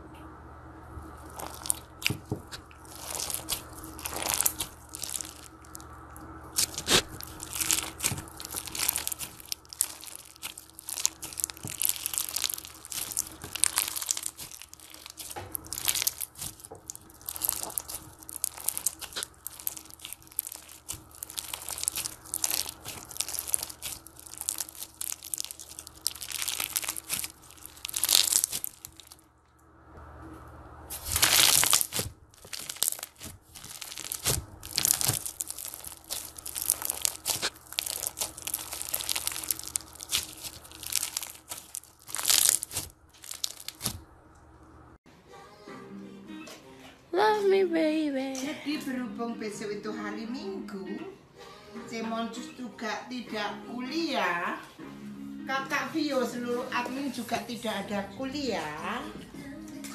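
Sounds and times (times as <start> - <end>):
slime with beads crunching: 1.1 - 5.9, 6.5 - 29.2, 30.9 - 44.0.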